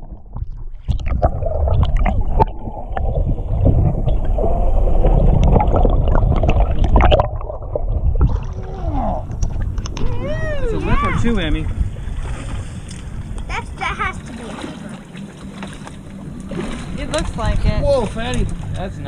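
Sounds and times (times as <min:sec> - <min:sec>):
clicks and knocks underwater: 0:00.0 - 0:10.2, 0:12.2 - 0:19.0
fish splashing: 0:00.0 - 0:10.6
water gurgling underwater: 0:00.0 - 0:18.8.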